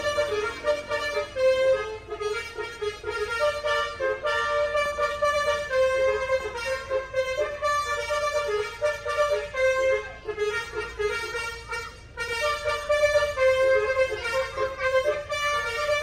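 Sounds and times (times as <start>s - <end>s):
bus air horn playing melody: 0.0s - 16.0s.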